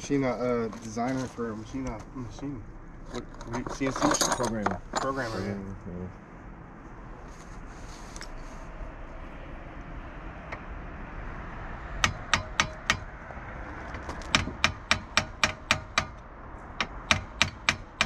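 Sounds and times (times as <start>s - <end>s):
hammer striking steel bolt: 12.0s - 13.1s, 14.3s - 16.2s, 16.8s - 18.0s.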